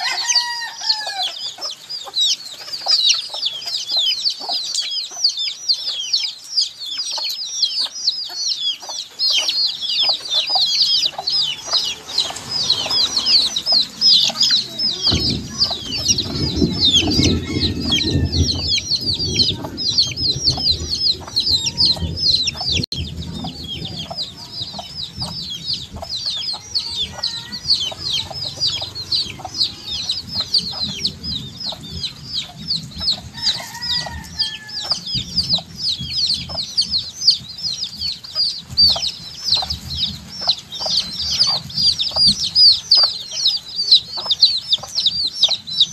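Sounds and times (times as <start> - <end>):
baby chicks peeping: 0.0 - 45.9
low rumbling noise: 9.1 - 42.9.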